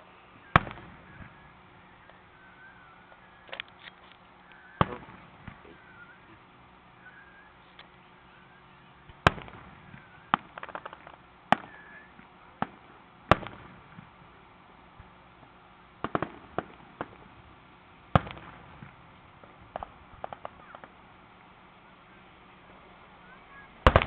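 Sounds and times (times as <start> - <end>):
small firework pops: 0.6 - 1.3, 3.1 - 5.8, 9.1 - 14.1, 16.0 - 17.3, 18.2 - 21.5
firework shells bursting: 9.1 - 11.8, 16.0 - 17.3, 18.1 - 21.0.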